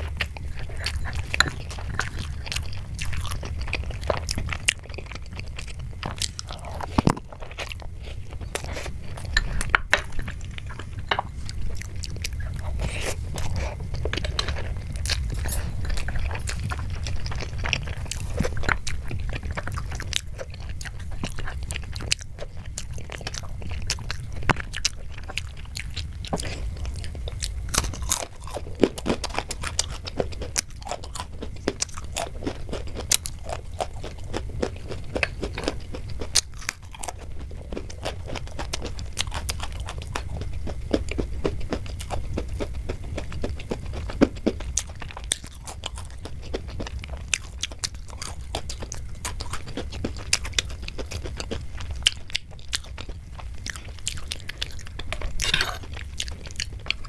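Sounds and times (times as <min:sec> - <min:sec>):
chewing and crunching food: 0:00.0 - 0:57.0.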